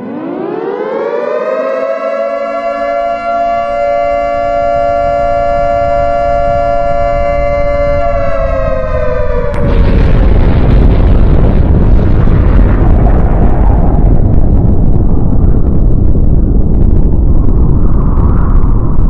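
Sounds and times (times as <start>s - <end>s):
air-raid siren wailing: 0.0s - 10.0s
low rumble: 3.4s - 19.0s.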